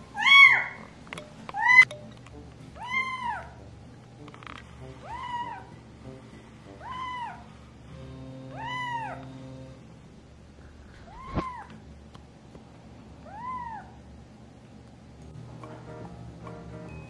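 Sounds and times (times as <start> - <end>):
kitten mewing: 2.8 - 3.6, 5.0 - 5.8, 6.8 - 7.5, 8.5 - 9.3, 10.9 - 11.8, 13.2 - 14.0.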